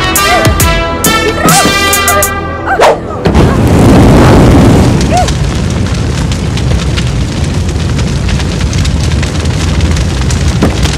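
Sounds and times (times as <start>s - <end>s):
low rumble of flames: 0.0s - 10.9s
fire crackles and pops: 3.1s - 10.9s.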